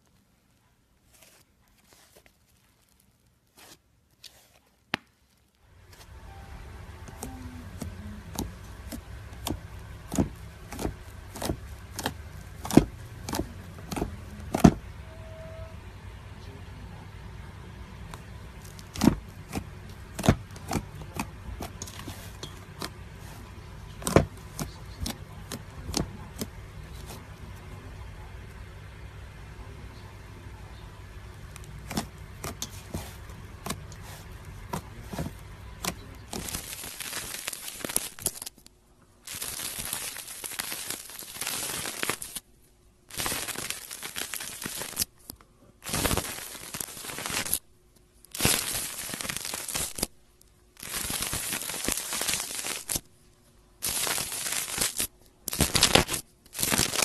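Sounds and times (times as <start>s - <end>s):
slime crackling and squishing: 0.0s - 14.9s, 18.1s - 27.7s, 31.2s - 42.5s, 43.1s - 53.1s, 53.8s - 57.0s
low hum: 5.6s - 32.4s.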